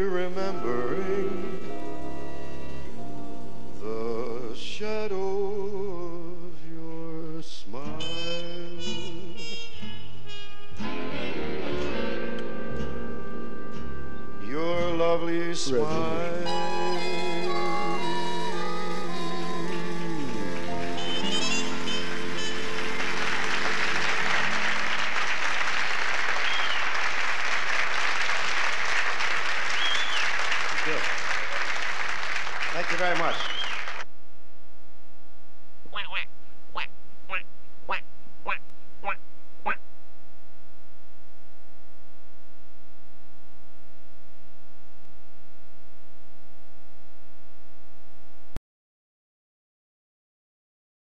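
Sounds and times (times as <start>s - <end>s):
jazz tune: 15.9s - 25.0s
high-pitched tone: 16.3s - 23.4s, 35.9s - 39.8s
audience applause: 20.1s - 34.0s.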